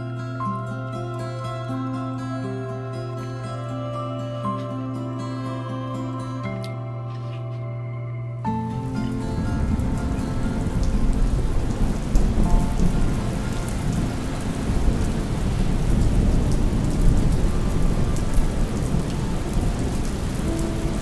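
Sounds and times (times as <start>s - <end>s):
steady rain: 8.5s - 21.0s
thunder rumbling: 8.6s - 21.0s
drops ticking: 8.8s - 17.3s.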